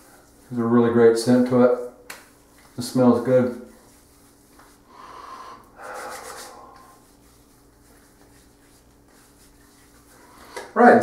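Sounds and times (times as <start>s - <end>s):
hands rubbing skin: 2.1s - 5.0s, 5.6s - 11.0s.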